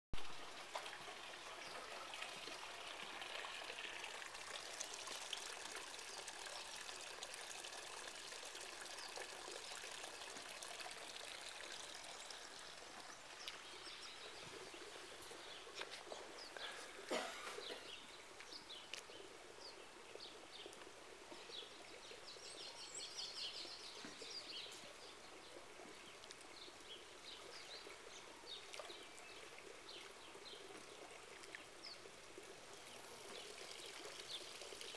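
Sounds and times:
water lapping against tiles: 10.4 - 19.1
birds chirping: 11.1 - 32.1.

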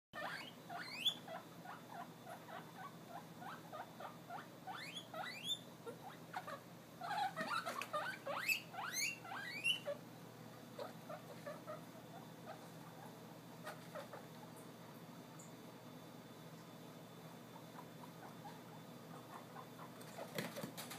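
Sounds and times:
guinea pig rising whistles: 0.2 - 1.4, 4.7 - 5.6, 7.1 - 10.0
guinea pigs squeaking: 0.2 - 10.0, 10.8 - 14.7, 17.4 - 20.9.

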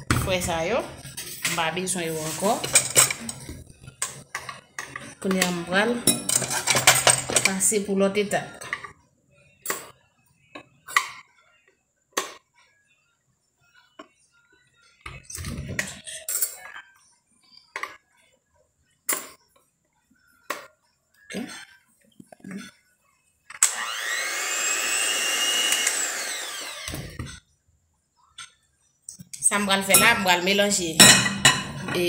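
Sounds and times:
kitchen things knocking: 1.3 - 7.7, 29.8 - 32.0
electric hand mixer whining: 23.6 - 27.3.

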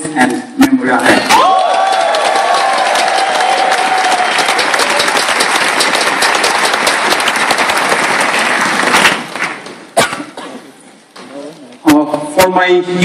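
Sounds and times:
audience applauding: 1.3 - 10.0.

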